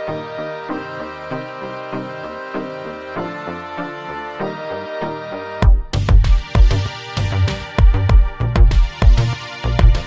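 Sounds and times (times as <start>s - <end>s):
electronic music with deep thumps: 2.4s - 10.0s.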